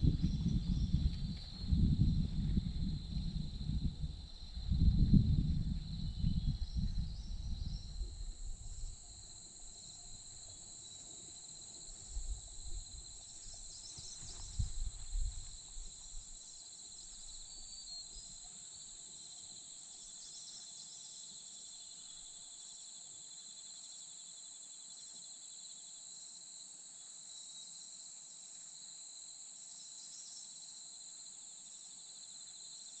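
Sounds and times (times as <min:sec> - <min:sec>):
insects chirring: 0:00.0 - 0:25.8.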